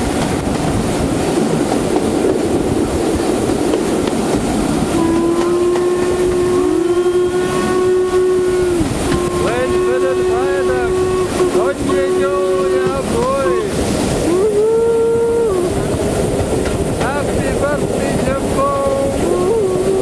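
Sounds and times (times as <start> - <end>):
train running noise: 0.0 - 20.0
steam whistle blast: 4.8 - 15.8.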